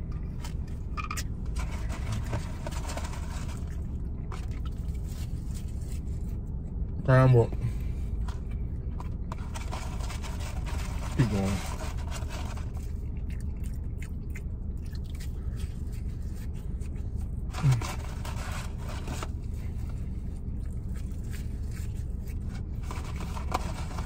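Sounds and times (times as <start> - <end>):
low hum inside car: 0.0 - 24.0
cardboard carton rustling: 1.5 - 6.0, 17.5 - 19.4, 22.4 - 24.0
chewing: 12.6 - 18.3, 19.8 - 23.1.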